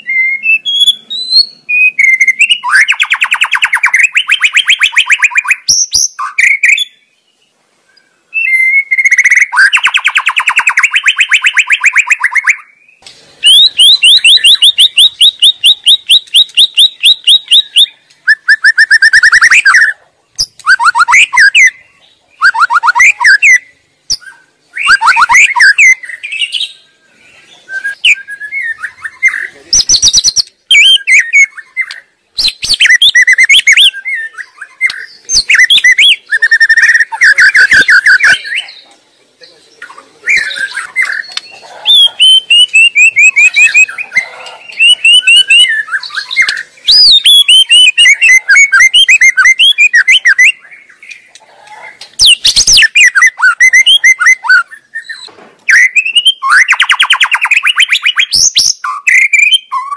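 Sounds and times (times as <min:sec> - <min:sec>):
bird singing whistled song: 0:00.0 - 0:38.8, 0:39.5 - 0:59.9.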